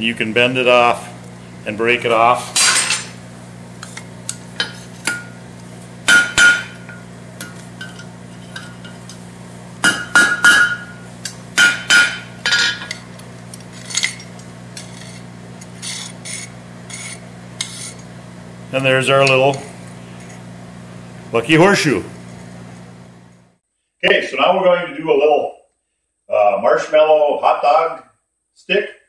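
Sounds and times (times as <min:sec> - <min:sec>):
steady low hum: 0:00.0 - 0:28.5
hammer striking metal chisel: 0:06.1 - 0:07.6, 0:09.8 - 0:10.9, 0:11.6 - 0:12.9.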